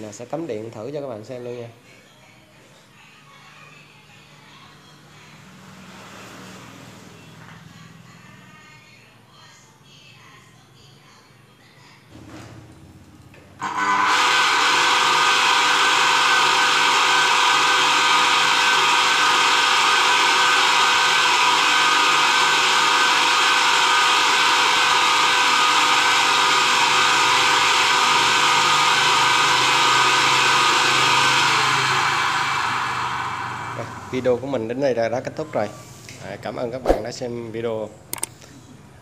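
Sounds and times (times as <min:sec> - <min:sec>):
water pump motor whining: 0:13.6 - 0:34.8.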